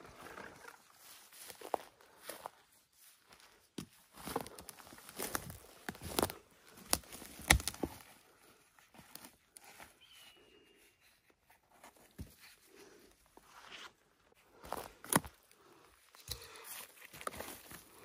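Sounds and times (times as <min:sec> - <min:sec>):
footsteps on forest floor: 0:00.1 - 0:10.7, 0:11.6 - 0:18.0.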